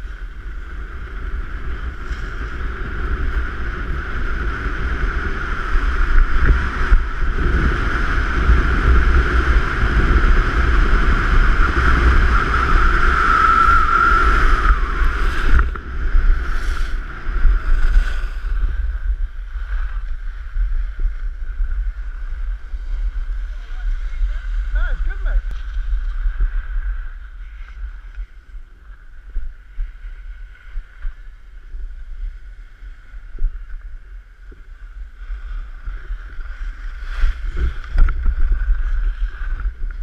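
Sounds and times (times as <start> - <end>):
wind buffeting microphone: 0.0 - 40.0
skis hissing over packed snow: 11.5 - 40.0.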